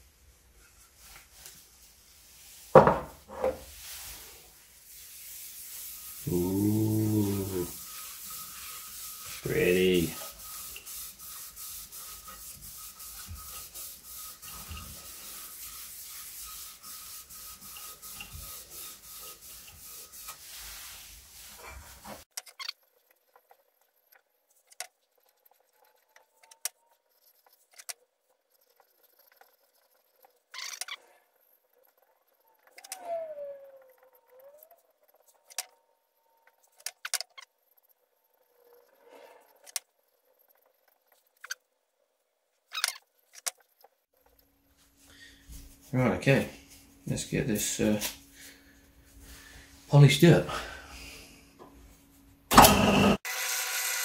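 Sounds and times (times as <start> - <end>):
sandpaper on spinning wood: 3.8 - 22.3
short squeak: 30.5 - 31.1, 42.7 - 43.0.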